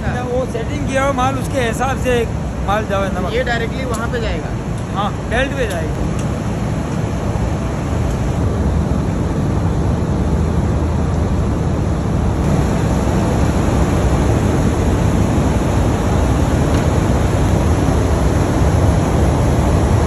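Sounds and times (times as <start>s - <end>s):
machinery rumbling with hiss: 0.0s - 20.0s.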